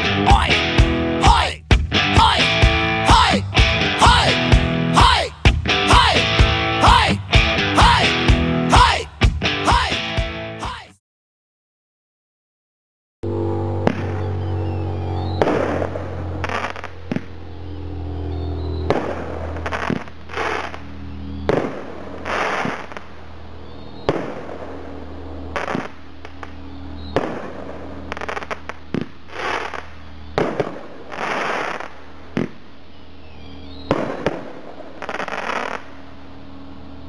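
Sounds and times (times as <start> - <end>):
fireworks sharp reports: 0.0 - 3.4, 4.0 - 7.2, 10.6 - 10.9, 13.8 - 32.7, 33.6 - 36.0
fireworks crackling: 16.4 - 17.3, 18.9 - 20.9, 28.1 - 32.6, 33.9 - 35.9.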